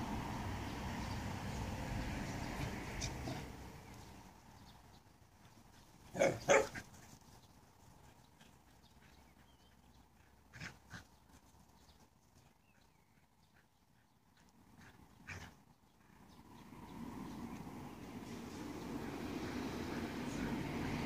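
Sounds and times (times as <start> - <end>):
dog barking: 6.2 - 6.8.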